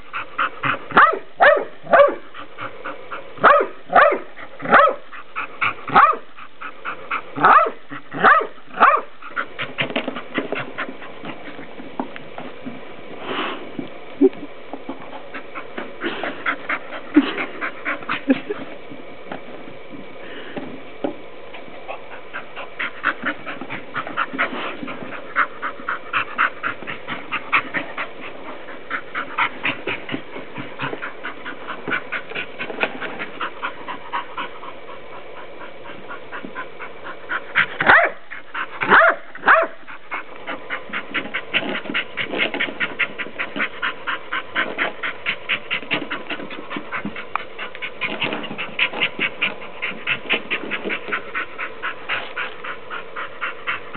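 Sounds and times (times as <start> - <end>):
dog panting hard: 0.0 - 12.1, 14.9 - 18.8, 21.5 - 53.9
dog barking: 0.9 - 2.2, 3.4 - 5.0, 5.9 - 6.2, 7.4 - 9.1, 37.8 - 38.2, 38.9 - 39.8.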